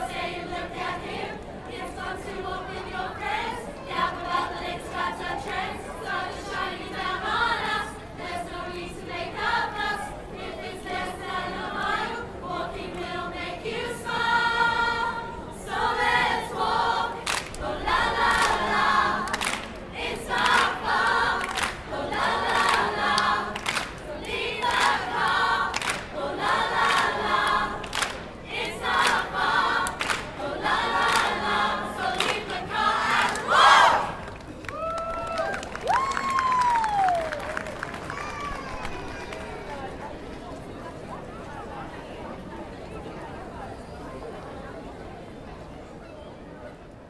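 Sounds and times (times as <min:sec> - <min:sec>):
group singing over a beat: 0:00.0 - 0:34.2
loud shout: 0:34.7 - 0:39.7.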